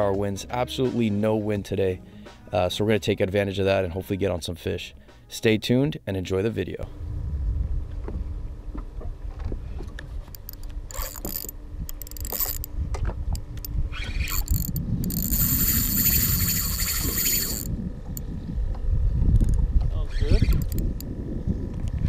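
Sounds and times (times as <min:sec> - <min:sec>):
low rumble: 0:06.8 - 0:22.0
fishing reel gears whirring: 0:10.2 - 0:18.3, 0:19.4 - 0:21.1.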